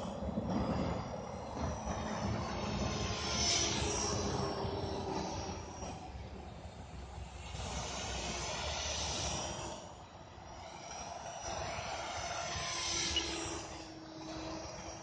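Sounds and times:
helicopter rotor noise: 0:00.0 - 0:15.0
high motor and gear whine: 0:00.0 - 0:15.0.

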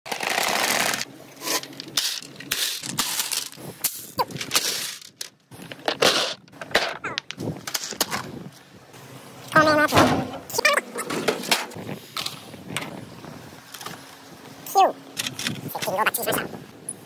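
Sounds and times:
balls rolling in plastic gutter: 0:00.1 - 0:03.6
balls knocking and clacking: 0:04.2 - 0:08.2.

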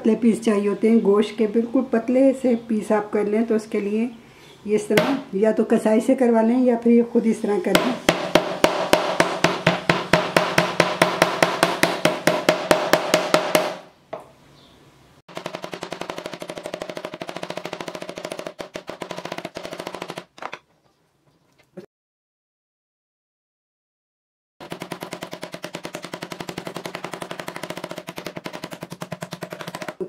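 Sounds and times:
mallet pounding meat on board: 0:07.8 - 0:13.9, 0:15.3 - 0:20.3, 0:24.6 - 0:30.0.

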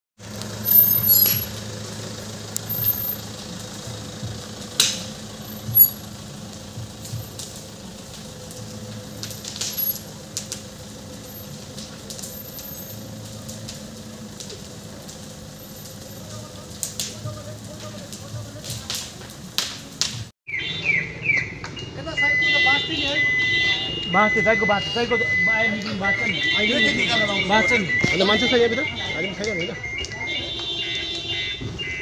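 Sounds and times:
sharp cracks and pops: 0:00.2 - 0:01.8, 0:04.6 - 0:20.3
fire crackling: 0:00.2 - 0:32.0.

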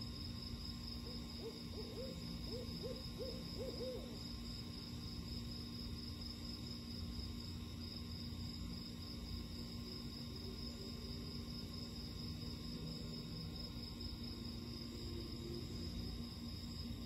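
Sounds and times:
night insects trilling: 0:00.0 - 0:17.0
owl hooting: 0:01.4 - 0:04.2.

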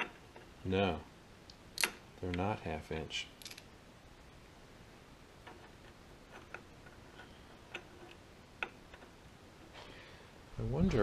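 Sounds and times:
small metal clicks: 0:01.5 - 0:02.0, 0:03.4 - 0:03.7.

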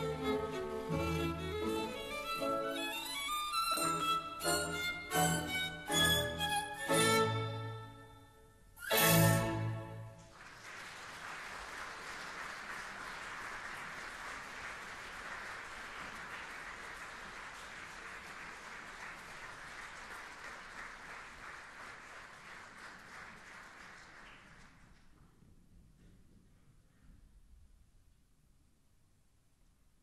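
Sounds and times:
audience applauding: 0:10.0 - 0:25.1.

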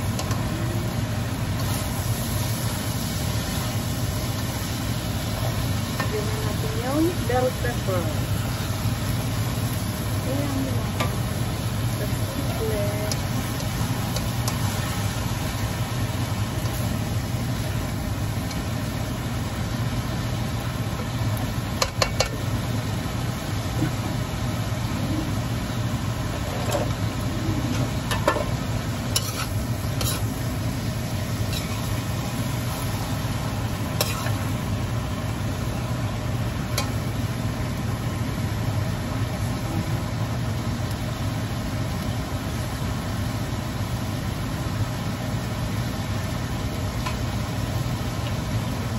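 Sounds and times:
vegetables sizzling in a wok: 0:00.0 - 0:48.9
utensil scraping a wok: 0:27.7 - 0:34.7.

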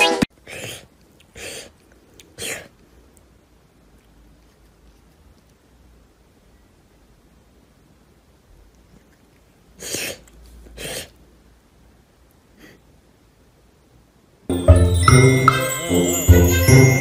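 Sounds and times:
faint sniff: 0:00.4 - 0:03.0, 0:09.7 - 0:11.3, 0:12.5 - 0:12.9
cat sneezing: 0:02.3 - 0:02.7, 0:09.8 - 0:11.2
music: 0:14.5 - 0:17.0.

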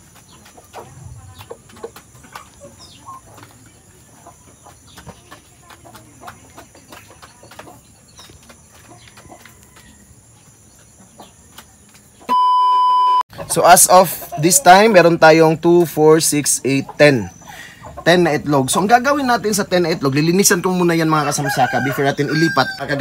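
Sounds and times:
hens clucking softly: 0:00.0 - 0:12.3, 0:13.3 - 0:15.1, 0:16.2 - 0:18.8
hens pecking and scratching litter: 0:00.0 - 0:12.3, 0:13.4 - 0:23.0.

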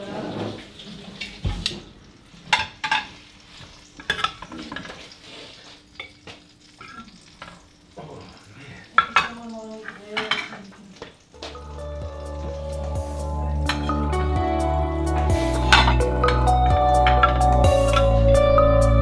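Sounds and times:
plates and utensils clinking: 0:00.0 - 0:07.7, 0:08.9 - 0:11.8, 0:13.6 - 0:14.2, 0:15.5 - 0:18.2
kitchen hiss: 0:00.0 - 0:16.5.

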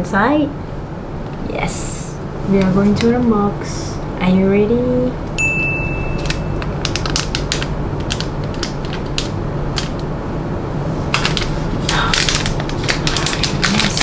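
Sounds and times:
paper and plastic film tearing: 0:06.2 - 0:10.0, 0:11.1 - 0:14.0
plastic crinkling by hand: 0:06.2 - 0:10.1, 0:11.1 - 0:14.0.

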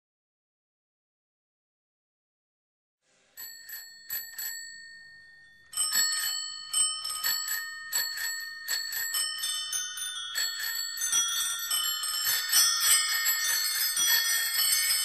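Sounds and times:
bicycle bells ringing: 0:03.4 - 0:15.0.

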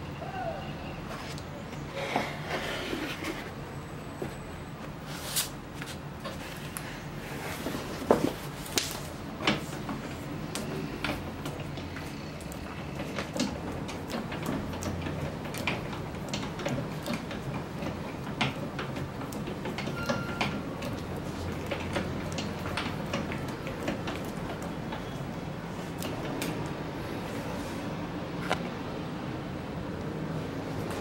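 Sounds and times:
printing press clicks and knocks: 0:08.0 - 0:27.4.

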